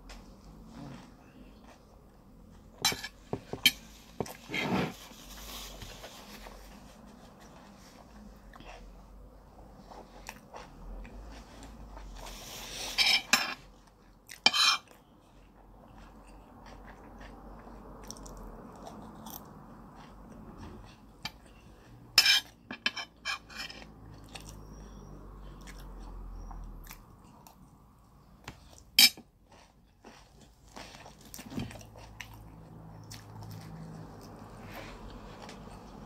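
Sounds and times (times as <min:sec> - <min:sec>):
chewing and mouth noises: 0:14.2 - 0:22.6, 0:23.9 - 0:27.8, 0:28.4 - 0:36.0.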